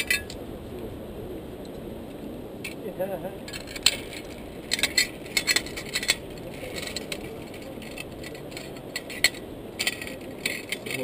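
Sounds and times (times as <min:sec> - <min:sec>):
metal clicks of zipline trolley: 0:03.5 - 0:11.0.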